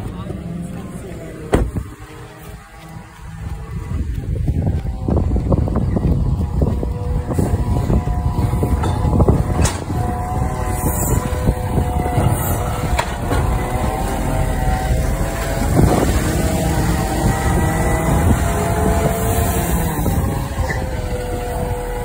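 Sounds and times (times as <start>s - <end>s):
garbage truck engine rumbling: 0.0s - 22.0s
multi-tone whine: 0.0s - 22.0s.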